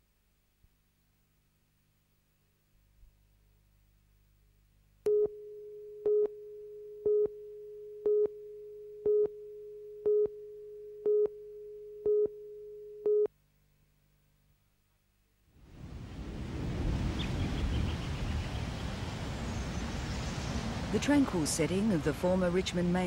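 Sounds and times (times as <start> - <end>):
countdown beeps: 9.0 - 9.4, 10.0 - 13.3.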